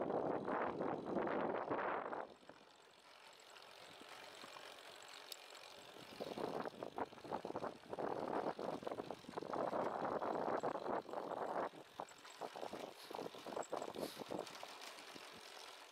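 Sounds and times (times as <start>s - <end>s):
bicycle rumbling on paved path: 0.0s - 15.9s
wind buffeting microphone: 6.1s - 14.5s.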